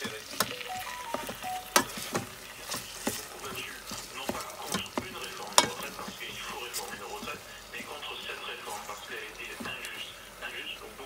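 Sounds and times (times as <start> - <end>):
meat sizzling: 0.0 - 11.0
spatula scraping pot: 1.8 - 10.3.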